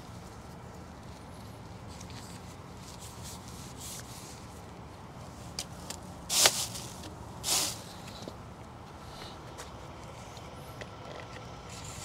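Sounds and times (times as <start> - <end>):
grease gun hissy rasps: 6.3 - 8.3.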